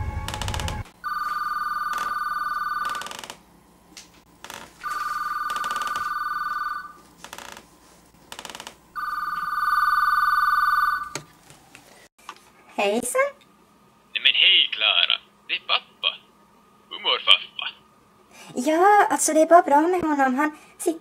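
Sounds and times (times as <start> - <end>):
telephone ringing: 1.0 - 3.2, 4.8 - 7.0, 9.0 - 11.2.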